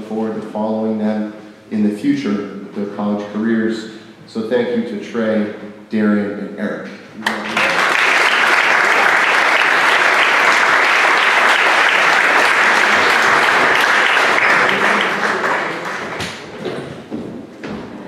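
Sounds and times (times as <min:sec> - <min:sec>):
audience applauding: 0:07.2 - 0:16.7.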